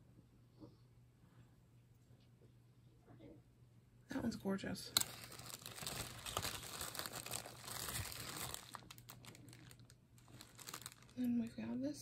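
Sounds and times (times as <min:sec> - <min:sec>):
plastic bag crinkling: 0:04.9 - 0:11.6.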